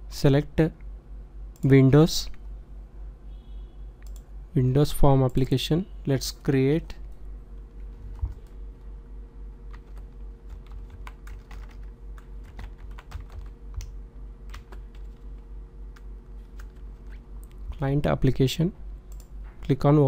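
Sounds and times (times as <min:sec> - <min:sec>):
low electrical hum: 0:00.0 - 0:20.0
keyboard typing: 0:09.7 - 0:15.4, 0:16.0 - 0:17.2.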